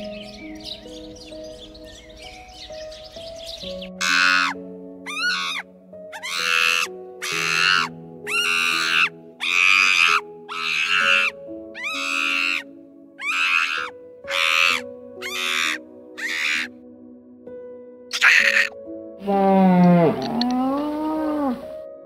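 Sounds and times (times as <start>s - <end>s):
soft background music: 0.0s - 22.0s
harsh animal calls: 4.0s - 16.7s, 18.1s - 21.6s.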